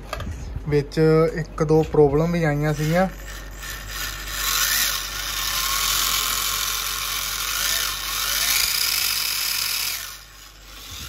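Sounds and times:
small electric motor whirring: 0:02.6 - 0:11.0.

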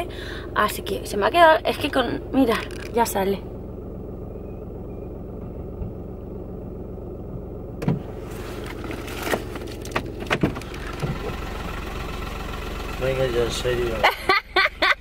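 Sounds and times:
car engine idling: 0:00.0 - 0:15.0
knocks and clunks: 0:02.5 - 0:03.2, 0:04.9 - 0:06.1, 0:07.8 - 0:11.4
rustling: 0:08.0 - 0:11.3.

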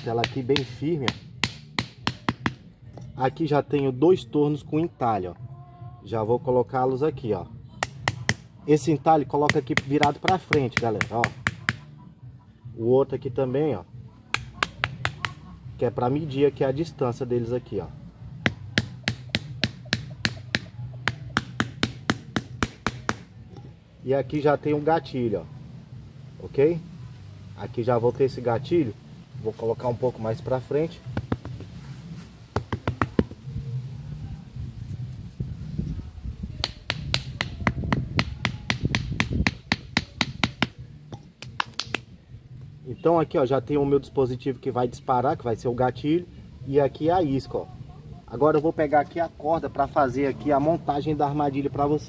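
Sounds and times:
sharp knocks on wooden stake: 0:00.0 - 0:02.7, 0:07.8 - 0:08.5, 0:09.4 - 0:11.9, 0:14.3 - 0:15.4, 0:18.4 - 0:23.3, 0:31.1 - 0:31.7, 0:32.5 - 0:33.4, 0:36.6 - 0:42.1.

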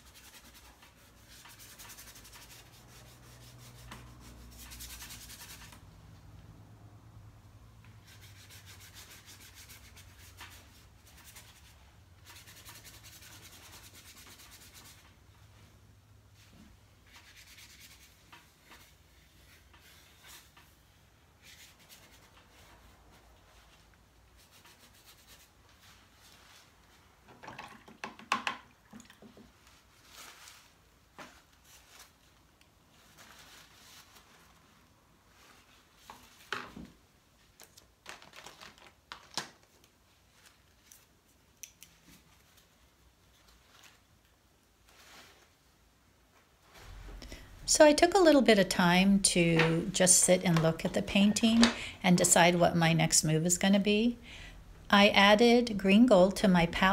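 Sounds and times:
paintbrush scrubbing on paper: 0:00.0 - 0:05.8, 0:08.0 - 0:15.1, 0:16.4 - 0:20.5, 0:21.4 - 0:26.8.

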